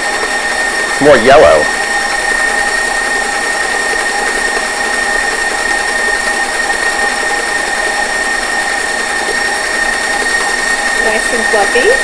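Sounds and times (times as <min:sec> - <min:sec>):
stand mixer whining: 0:00.0 - 0:12.0.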